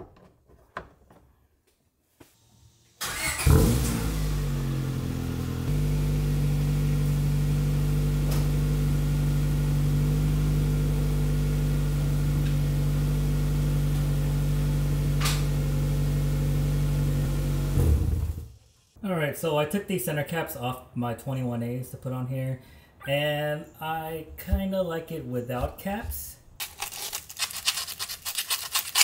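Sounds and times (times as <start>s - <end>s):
car engine starting and idling: 3.0s - 18.6s.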